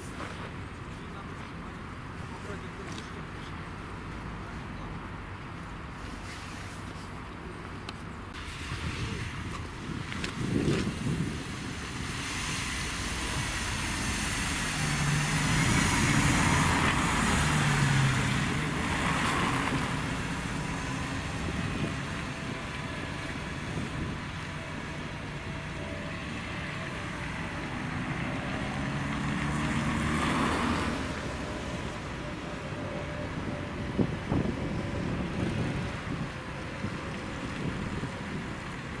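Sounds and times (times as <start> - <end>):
bus engine humming: 0.0 - 39.0
tyre and road noise: 0.0 - 39.0
vehicle passing close: 10.2 - 36.2.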